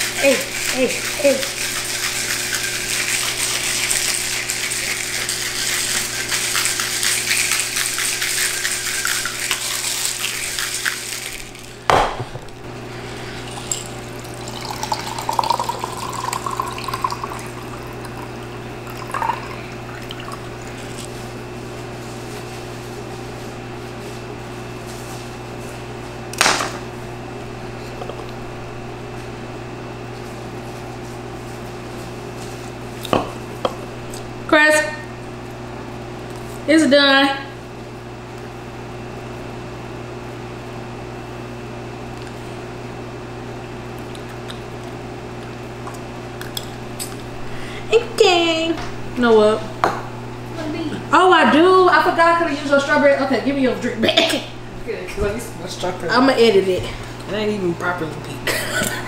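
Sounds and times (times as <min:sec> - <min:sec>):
ice rattling in cocktail shaker: 0:00.0 - 0:11.8, 0:13.4 - 0:17.8
drink pouring into glass: 0:13.4 - 0:21.0.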